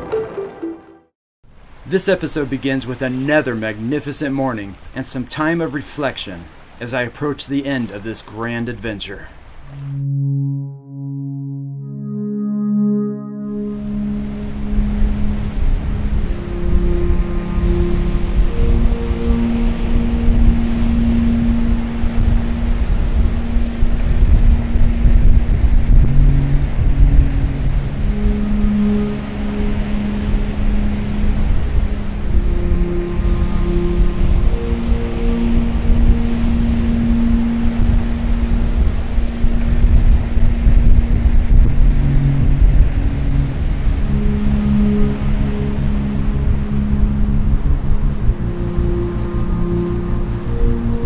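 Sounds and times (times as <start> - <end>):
sea surf on rocky shore: 1.6 - 9.9, 14.0 - 51.0
surf washing against rocks: 1.7 - 9.8
soft background music: 9.8 - 51.0
wind buffeting microphone: 13.8 - 51.0.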